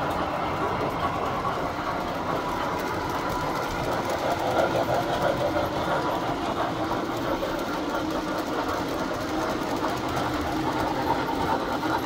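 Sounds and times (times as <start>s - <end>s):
model train rattling and humming: 0.0s - 12.0s.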